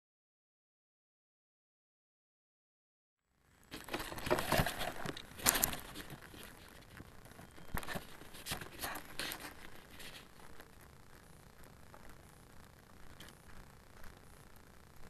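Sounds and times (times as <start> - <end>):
rustling and crinkling: 3.6 - 12.2.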